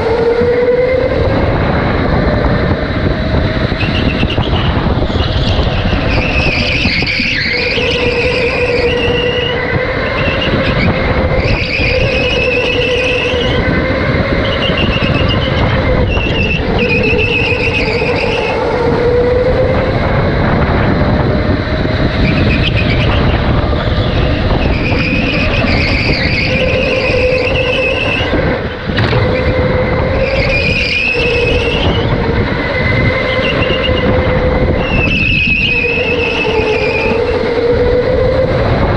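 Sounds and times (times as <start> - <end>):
electric motor whine: 0.0 - 38.9
rushing noise: 0.0 - 38.9
tyre squeal: 3.7 - 18.8, 22.2 - 37.8.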